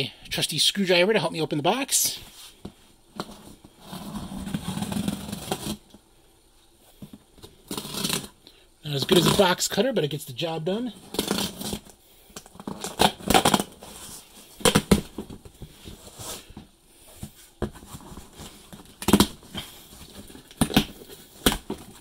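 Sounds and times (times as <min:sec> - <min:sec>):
tape and cardboard ripping: 0:04.0 - 0:05.8, 0:07.6 - 0:08.4, 0:11.1 - 0:11.9, 0:12.6 - 0:15.2, 0:18.8 - 0:22.0.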